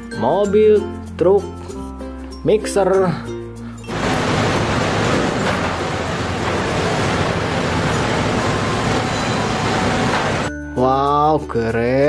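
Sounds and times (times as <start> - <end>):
diesel truck engine rumbling: 3.9 - 10.5.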